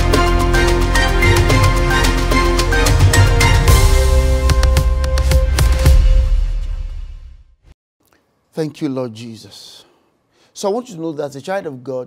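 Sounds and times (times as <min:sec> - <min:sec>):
intro music with steady beat: 0:00.0 - 0:07.5.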